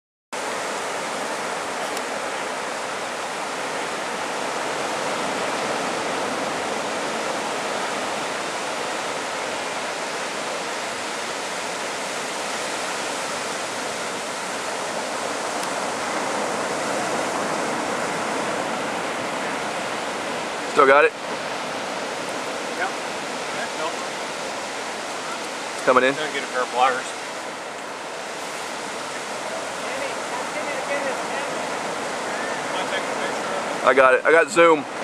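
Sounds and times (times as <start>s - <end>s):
ocean surf breaking on beach: 0.4s - 35.0s.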